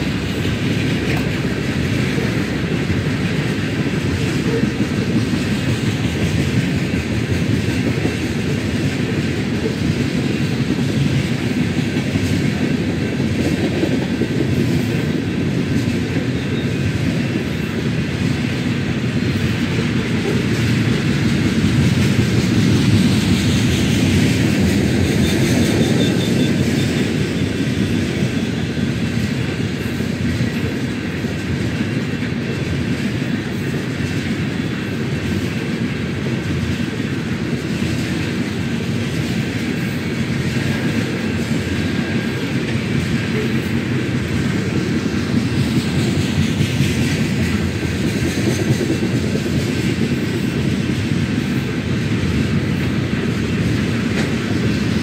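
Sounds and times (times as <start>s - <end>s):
train wheels rumbling on rail: 0.0s - 55.0s
wheels clicking over rail joints: 0.0s - 55.0s
high wheel squeal: 25.0s - 27.9s.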